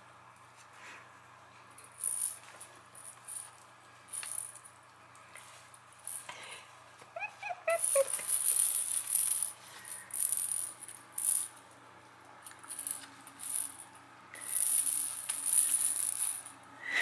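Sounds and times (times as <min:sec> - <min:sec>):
plastic ball toy rattling: 0:04.1 - 0:04.6, 0:07.7 - 0:11.5, 0:14.4 - 0:16.5.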